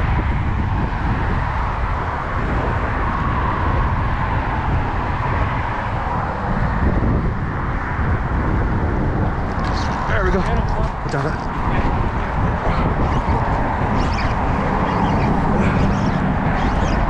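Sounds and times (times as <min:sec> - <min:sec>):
traffic road noise: 0:00.0 - 0:17.0
wind rumbling on microphone: 0:00.0 - 0:17.0.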